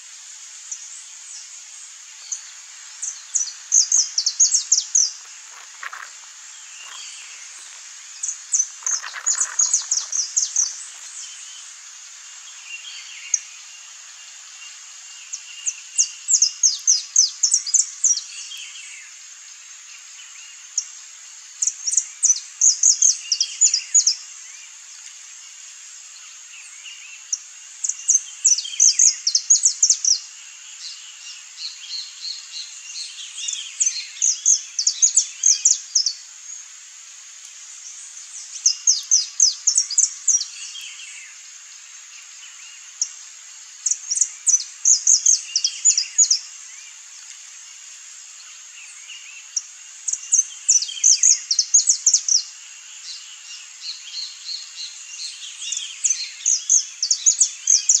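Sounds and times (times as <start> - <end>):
steady high hiss: 0.0 - 58.0
finch singing: 6.7 - 11.5.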